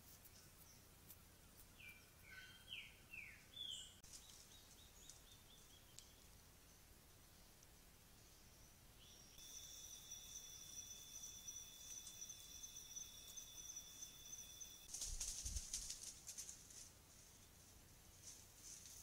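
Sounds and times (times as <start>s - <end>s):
high-pitched two-tone whine: 9.1s - 14.9s
rustle in dry leaf litter: 14.9s - 19.0s.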